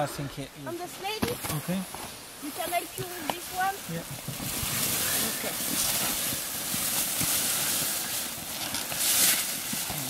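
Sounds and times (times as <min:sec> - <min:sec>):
foil blanket crinkling: 0:02.4 - 0:10.0.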